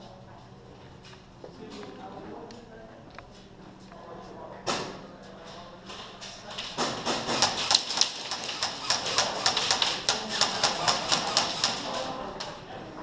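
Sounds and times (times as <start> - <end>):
pellets striking plywood walls: 6.8 - 11.9
airsoft guns firing: 6.8 - 12.0.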